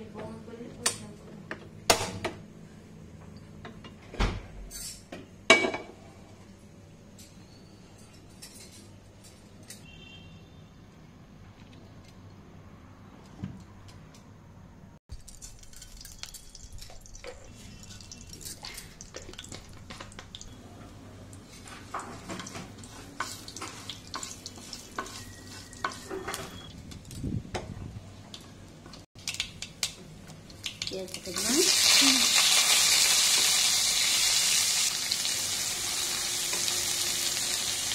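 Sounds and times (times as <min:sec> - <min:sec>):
spatula scraping pan: 0:21.5 - 0:26.4
spices sizzling in hot oil: 0:21.5 - 0:26.5, 0:29.2 - 0:37.9.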